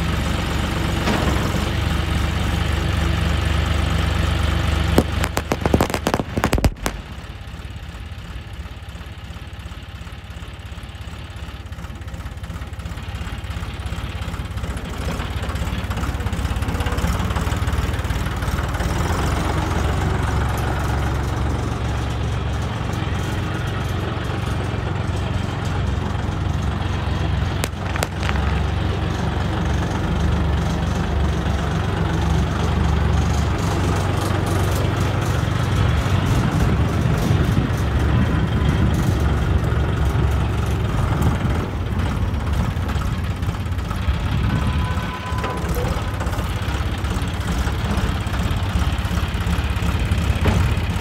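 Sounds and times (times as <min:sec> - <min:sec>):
tractor diesel engine running: 0:00.0 - 0:51.0.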